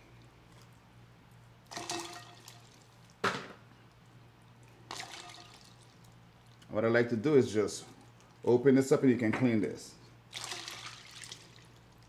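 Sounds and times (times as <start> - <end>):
water splashing into a bowl: 1.7 - 3.2, 4.7 - 6.6, 10.3 - 12.0.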